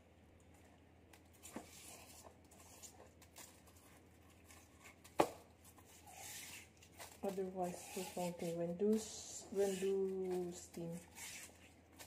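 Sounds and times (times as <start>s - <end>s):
hands rubbing salt off fish: 5.8s - 11.7s.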